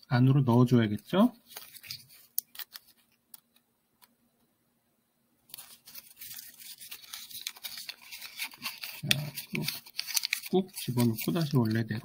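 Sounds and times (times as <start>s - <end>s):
paper crinkling and rustling: 0.4s - 3.2s, 5.5s - 12.0s.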